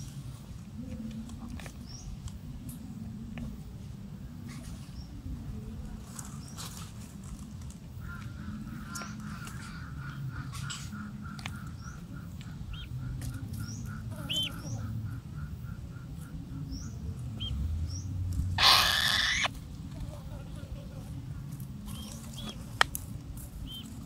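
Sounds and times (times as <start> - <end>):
bird calling short notes: 18.6 - 19.5
high bird chirps: 18.6 - 19.5.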